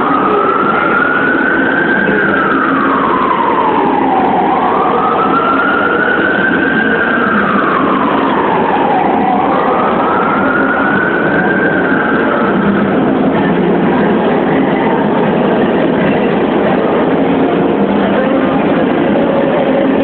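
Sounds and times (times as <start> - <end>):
noisy din: 0.0 - 20.0
siren wailing: 0.0 - 20.0.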